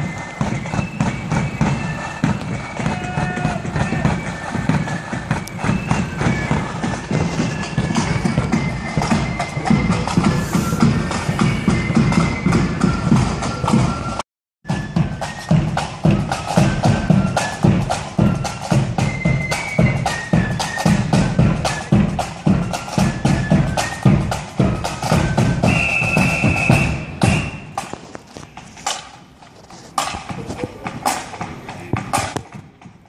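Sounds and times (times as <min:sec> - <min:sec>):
marching band playing: 0:00.0 - 0:33.0
bass drum beat: 0:02.3 - 0:13.8.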